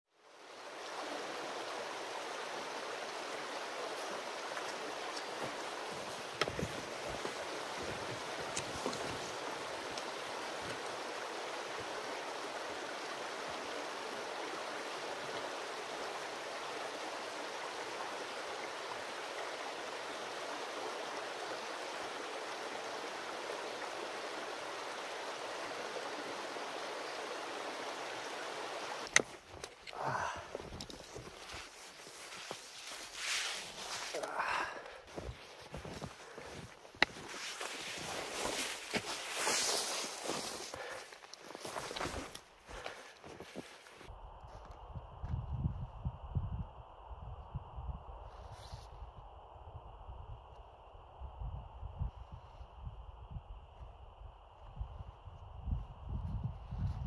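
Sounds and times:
stream running over rocks: 0.2s - 44.1s.

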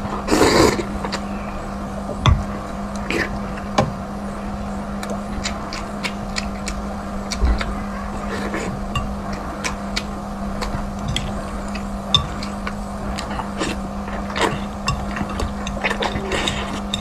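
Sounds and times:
steady low hum: 0.0s - 17.0s
person chewing with mouth clicks: 5.0s - 7.7s.

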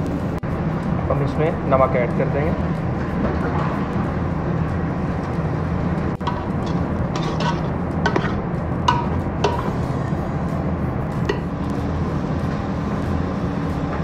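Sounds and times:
low kitchen rumble: 0.0s - 14.0s
metal spoon scraping pot: 6.2s - 9.8s.

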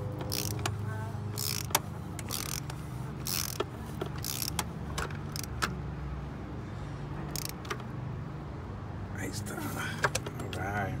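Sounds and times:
ratchet wrench clicking: 0.1s - 5.8s, 7.3s - 7.8s.

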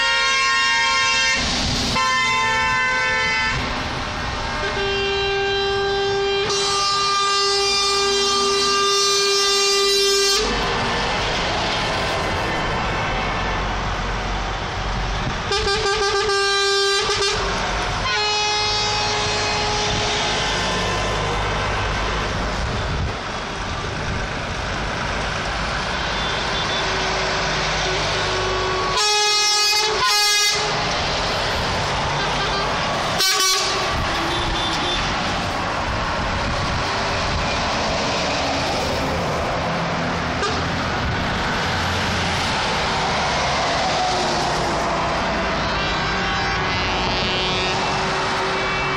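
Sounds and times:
truck air horn blasts: 0.0s - 3.7s, 4.6s - 10.6s, 15.5s - 21.3s, 27.8s - 30.9s, 32.1s - 35.1s, 40.4s - 40.8s, 45.6s - 48.9s
diesel trucks driving past: 0.0s - 48.9s.

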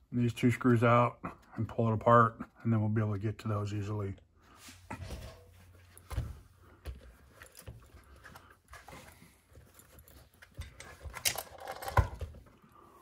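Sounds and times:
plastic parts clattering: 10.1s - 12.6s
plastic parts clicking and knocking: 10.2s - 12.6s.

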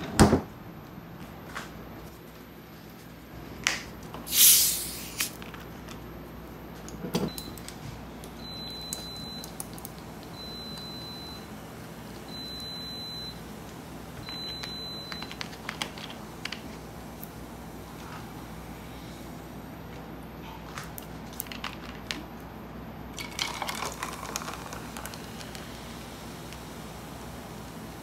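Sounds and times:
short hiss: 4.3s - 5.4s.

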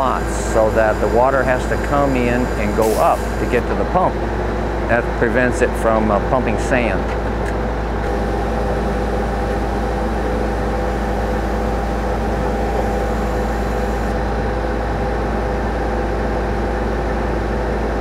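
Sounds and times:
drilling rig engine droning: 0.0s - 7.1s, 7.7s - 15.0s
faint steady whine: 7.9s - 14.4s.

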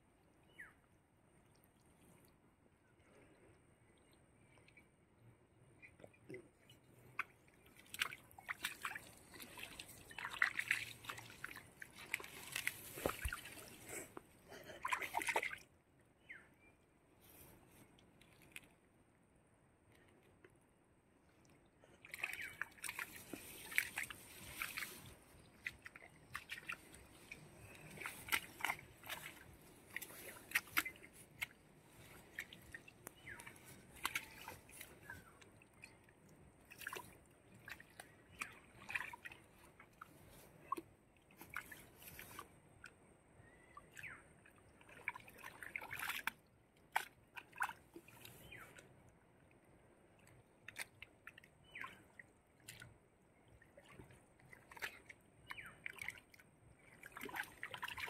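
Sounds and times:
wet mud squelching and water splashing: 7.0s - 15.7s, 21.8s - 49.0s, 49.9s - 58.0s.

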